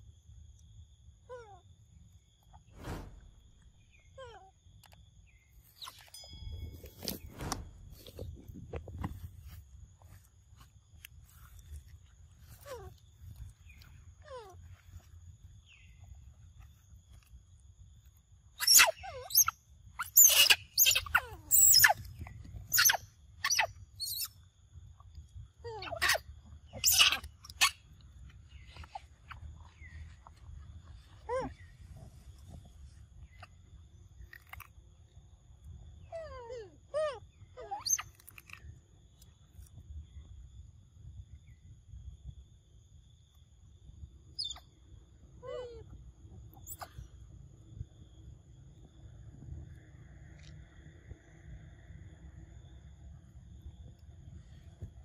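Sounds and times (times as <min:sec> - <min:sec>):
low rumble: 0:02.7 - 0:04.1, 0:06.2 - 0:09.3
macaque calls: 0:18.6 - 0:22.0, 0:26.8 - 0:27.8
monkeys squealing: 0:18.6 - 0:22.0, 0:22.7 - 0:24.3, 0:25.8 - 0:26.2, 0:26.8 - 0:27.8, 0:37.0 - 0:38.1.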